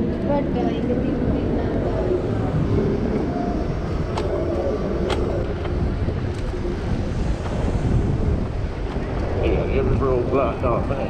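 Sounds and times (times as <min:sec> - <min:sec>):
e-bike rolling rumble: 0:00.0 - 0:11.0
wind buffeting microphone: 0:00.0 - 0:11.0
sharp clicks: 0:04.1 - 0:06.5.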